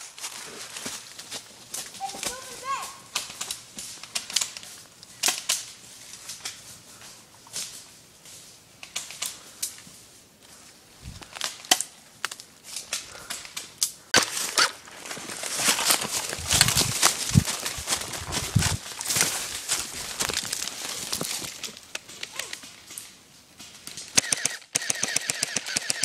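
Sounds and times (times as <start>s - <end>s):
rustle and crunch of dry leaves: 0.0s - 24.2s
airsoft guns firing: 24.2s - 26.0s.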